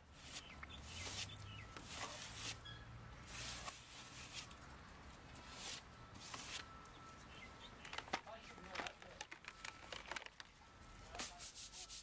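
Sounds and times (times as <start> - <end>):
brush scraping floor: 0.1 - 2.6, 3.2 - 4.6, 5.4 - 6.7, 11.1 - 12.0.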